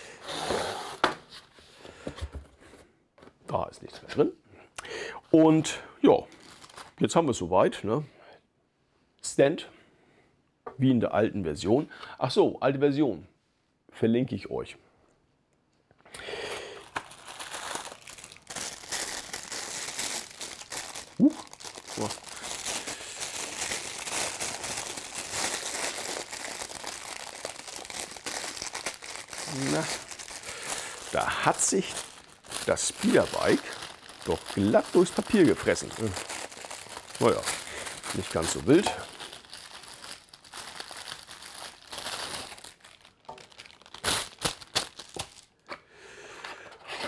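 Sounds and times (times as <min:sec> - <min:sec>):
wrapping paper crinkling and rustling: 0:06.3 - 0:07.1, 0:16.4 - 0:45.7.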